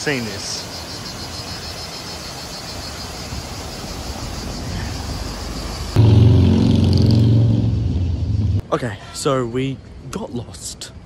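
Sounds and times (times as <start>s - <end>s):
loud low hum: 5.9s - 8.7s.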